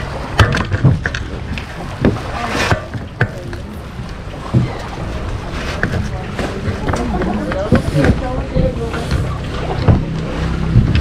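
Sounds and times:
boat motor running: 0:00.0 - 0:11.0
sharp knocks and clunks: 0:00.3 - 0:03.6, 0:04.4 - 0:05.0, 0:05.7 - 0:11.0.

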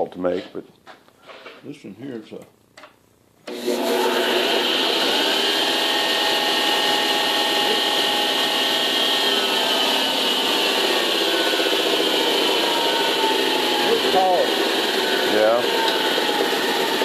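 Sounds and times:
belt and disc sander running: 0:03.5 - 0:17.0.

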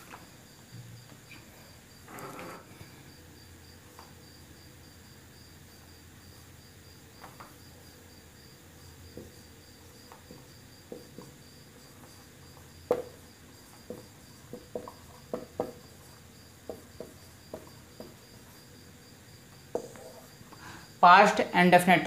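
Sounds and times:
marker pen squeaking on whiteboard: 0:01.2 - 0:02.8, 0:19.7 - 0:20.4.

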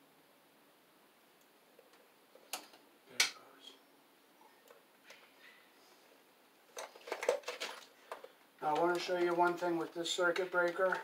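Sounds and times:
hand tools clicking and ticking: 0:08.1 - 0:11.0.

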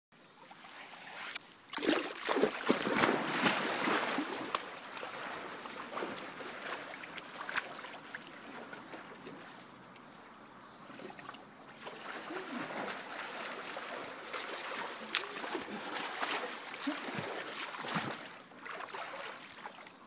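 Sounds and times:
water lapping against pool edge: 0:00.6 - 0:10.1, 0:10.8 - 0:19.9
person splashing into a pool: 0:01.2 - 0:08.8, 0:11.8 - 0:19.8.

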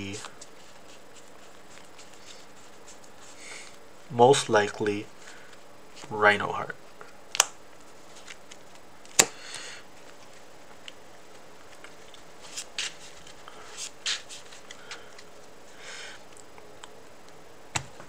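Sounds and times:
cards sliding swishes: 0:00.0 - 0:03.8, 0:11.7 - 0:15.5.

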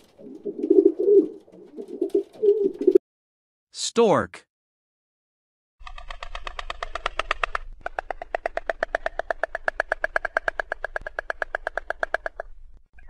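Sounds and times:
stork bill clattering: 0:00.0 - 0:02.8, 0:06.1 - 0:12.5.

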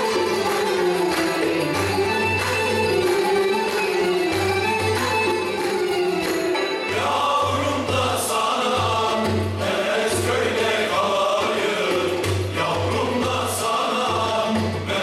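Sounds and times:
instrumental accompaniment pulsing beat: 0:00.0 - 0:10.8
men's choir singing: 0:06.7 - 0:15.0.

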